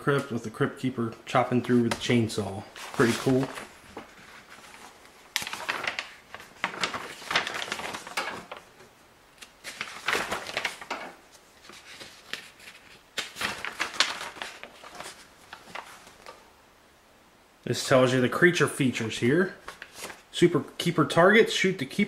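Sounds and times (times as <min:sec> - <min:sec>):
paper pages rustling: 0:01.1 - 0:16.4, 0:19.6 - 0:20.4.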